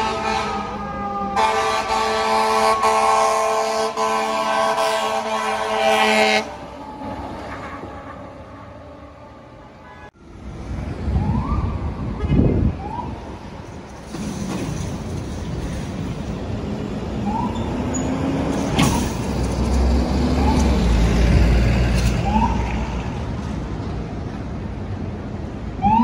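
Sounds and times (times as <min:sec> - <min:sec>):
vehicles driving past: 0:00.0 - 0:26.0.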